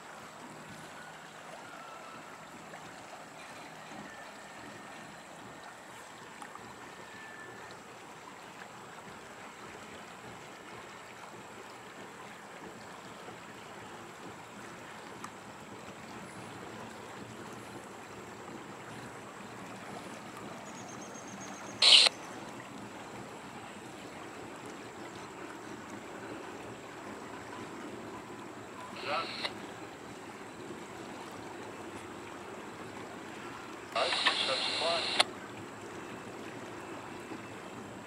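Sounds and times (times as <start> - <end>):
loud hiss: 21.8 - 22.1, 34.0 - 35.2.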